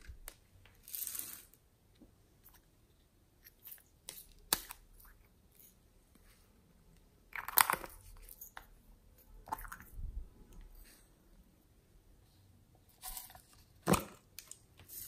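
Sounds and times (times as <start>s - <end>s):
plastic clicks: 7.3s - 8.1s.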